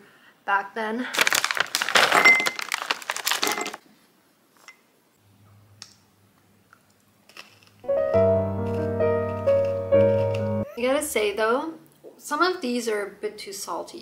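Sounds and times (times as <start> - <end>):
tableware clattering: 3.3 - 3.8.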